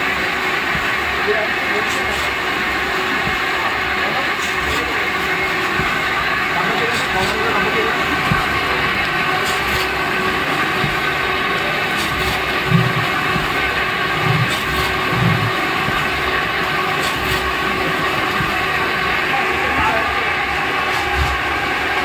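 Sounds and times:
pan mixer rumbling: 0:00.0 - 0:22.0
short low thumps: 0:04.6 - 0:19.0.

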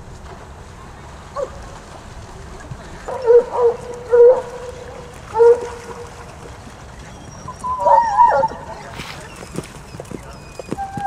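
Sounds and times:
hounds baying: 0:03.1 - 0:06.2, 0:07.1 - 0:11.0.

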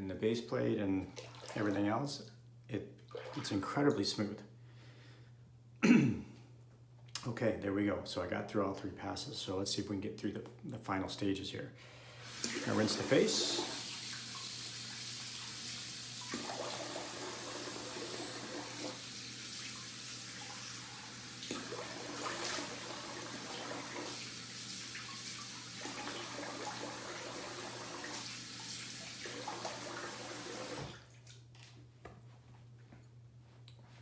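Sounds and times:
sink tap running: 0:12.2 - 0:31.0.

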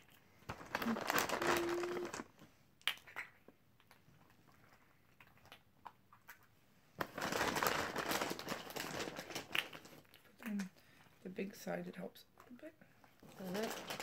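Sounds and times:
candy wrappers crinkling: 0:00.0 - 0:02.3, 0:07.0 - 0:10.7, 0:13.2 - 0:14.0.

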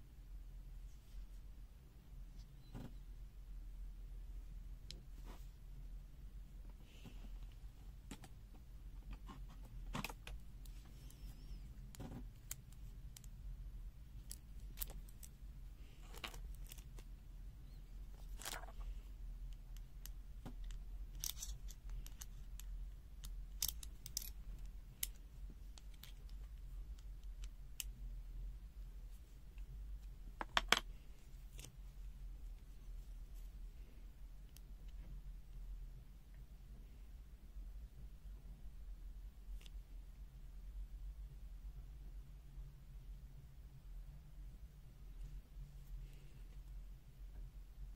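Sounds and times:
faint low hum: 0:00.0 - 0:47.9
small metallic clicks and taps: 0:19.5 - 0:28.0.

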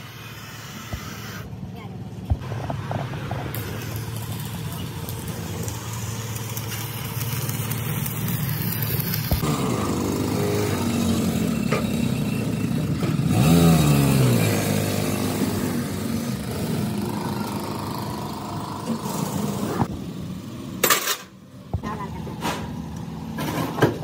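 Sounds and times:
small motorcycle engine revving: 0:07.0 - 0:20.0.

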